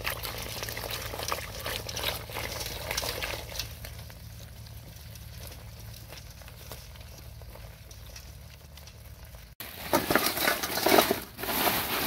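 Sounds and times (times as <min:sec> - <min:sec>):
water splashing in a pot: 0:00.0 - 0:09.5.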